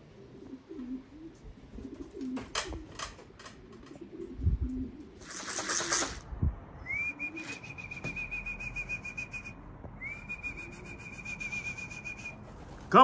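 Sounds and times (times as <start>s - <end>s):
long trilled whistle: 6.8s - 12.4s.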